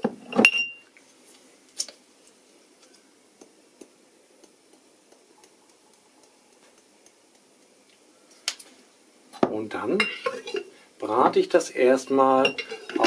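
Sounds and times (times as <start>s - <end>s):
ringing clink: 0.5s - 0.8s.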